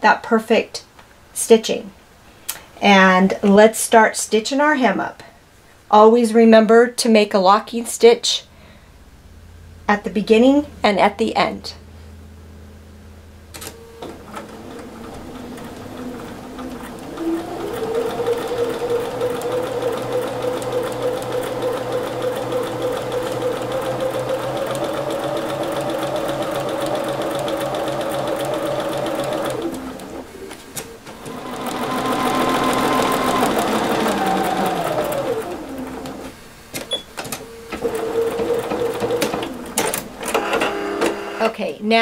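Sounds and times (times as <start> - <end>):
electric sewing machine stitching: 14.0 - 30.4, 31.1 - 36.4, 37.8 - 41.5.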